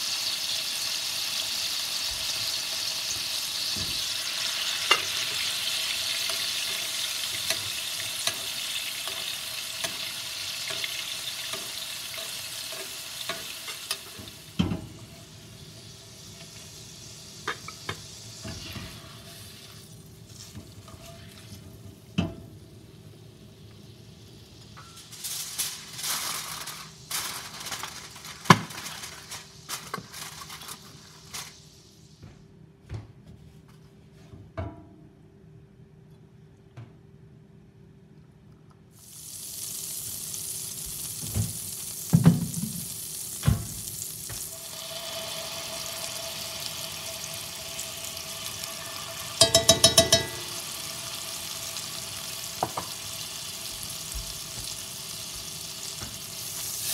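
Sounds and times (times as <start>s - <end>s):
steaks sizzling in pan: 0.0s - 21.4s, 39.0s - 56.9s
utensils clicking against pan: 11.5s - 14.2s, 49.4s - 50.5s.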